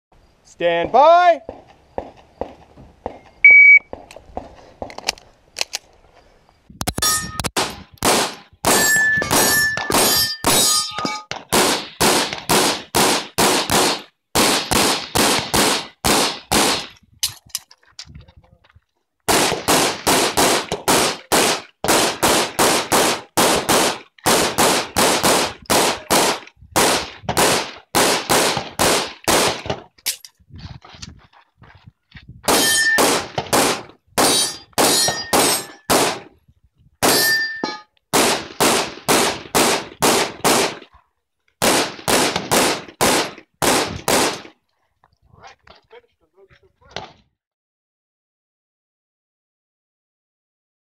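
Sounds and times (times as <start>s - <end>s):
shot timer beep: 3.4s - 3.9s
steel targets ringing: 7.0s - 7.5s, 8.7s - 11.3s, 32.5s - 33.1s, 34.2s - 35.9s, 37.0s - 37.9s
pistol shots: 7.5s - 16.9s, 19.3s - 29.8s, 32.5s - 36.3s, 37.0s - 37.4s, 38.1s - 40.8s, 41.6s - 44.5s.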